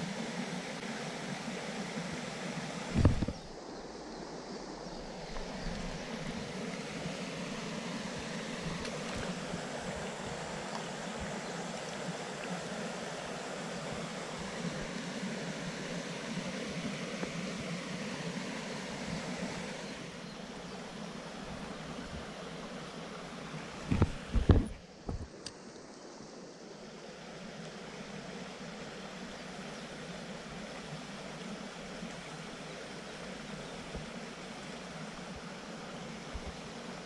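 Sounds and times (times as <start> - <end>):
creek water running: 0.0 - 37.0.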